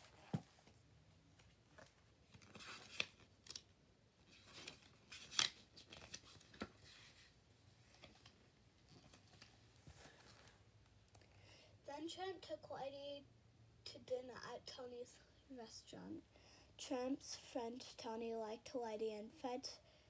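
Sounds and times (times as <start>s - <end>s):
book pages turning: 1.4s - 10.6s.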